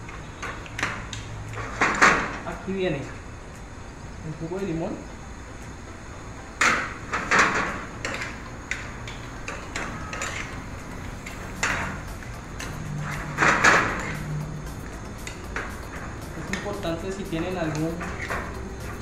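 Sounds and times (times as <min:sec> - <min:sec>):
metal spoon scraping a skillet: 0:09.5 - 0:14.3.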